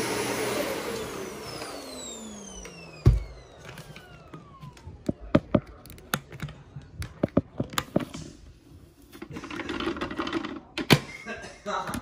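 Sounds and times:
vacuum cleaner motor spinning down: 0:00.0 - 0:05.8
plastic clicks and knocks: 0:04.7 - 0:08.2.

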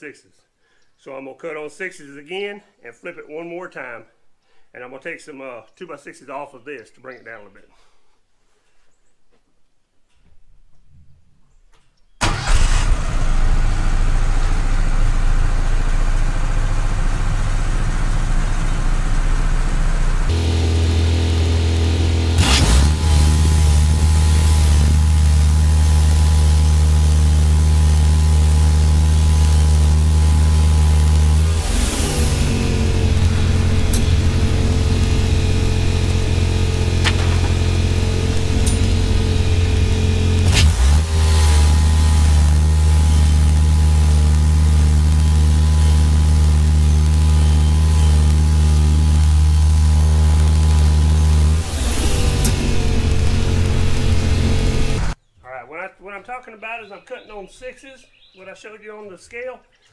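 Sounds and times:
sawmill engine running: 0:12.2 - 0:55.2
sharp knocks: 0:37.0 - 0:39.0.

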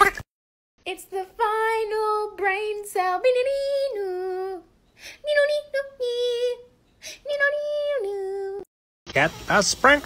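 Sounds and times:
woman singing unaccompanied: 0:00.8 - 0:08.7.

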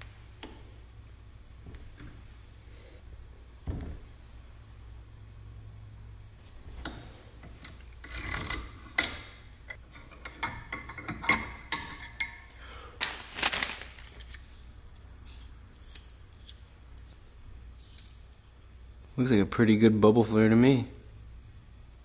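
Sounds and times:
plastic bag rustling: 0:13.0 - 0:14.4.

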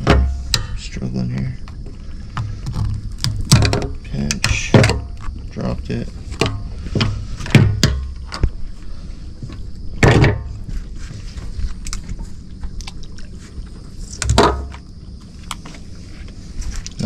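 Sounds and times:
steady low rumble: 0:00.0 - 0:17.0
knocks and thuds of handled gear: 0:06.3 - 0:08.6.

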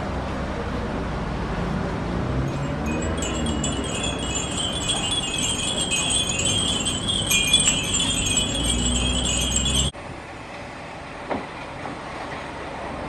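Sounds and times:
wind chimes tinkling: 0:02.4 - 0:09.9.

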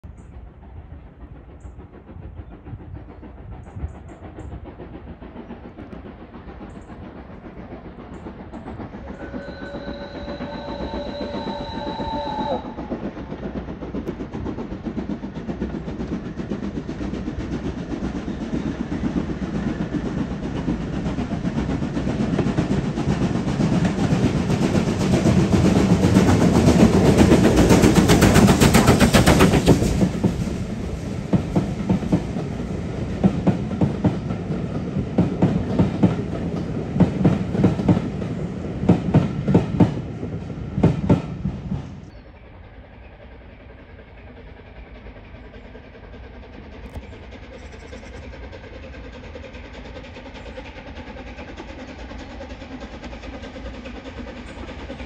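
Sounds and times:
steam train running: 0:00.0 - 0:55.0
steam train whistle: 0:09.1 - 0:13.2.

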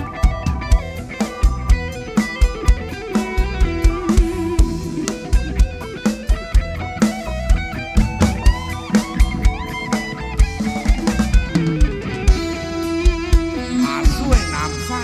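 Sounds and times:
drum kit beat: 0:00.0 - 0:15.0
electric guitar lead: 0:00.0 - 0:15.0.

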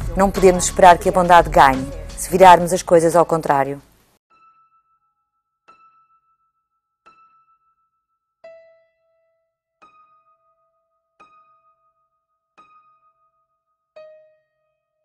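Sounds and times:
slow piano notes: 0:08.4 - 0:14.8.

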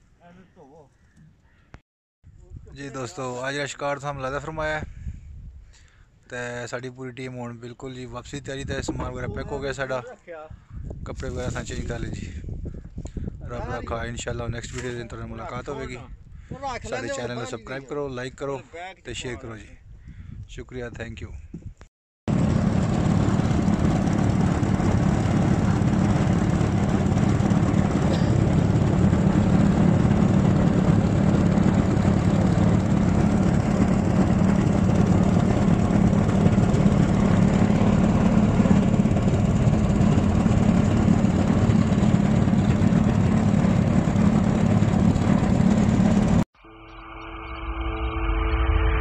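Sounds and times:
outboard motor droning: 0:22.3 - 0:46.4.

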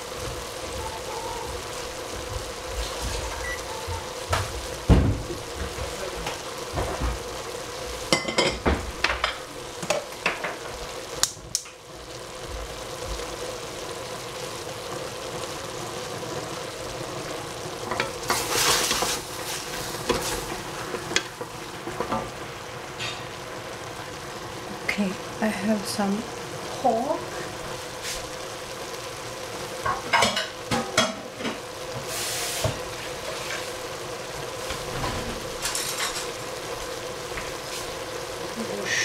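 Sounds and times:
food sizzling in oil: 0:00.0 - 0:39.0
utensil scraping a pan: 0:17.9 - 0:21.3.

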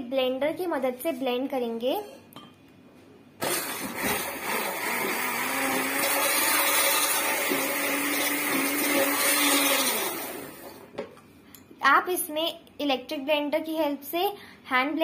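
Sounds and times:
electric hand blender running: 0:03.4 - 0:10.8.

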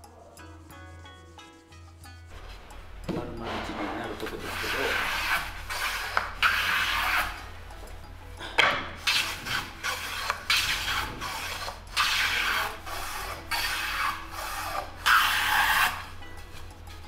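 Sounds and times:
hand plane rasping on wood: 0:04.4 - 0:07.4, 0:09.0 - 0:16.1.

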